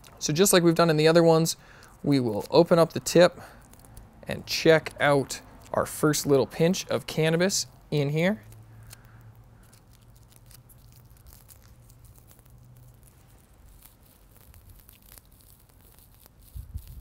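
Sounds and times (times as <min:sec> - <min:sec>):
rolling paper crinkling: 0:09.6 - 0:17.0.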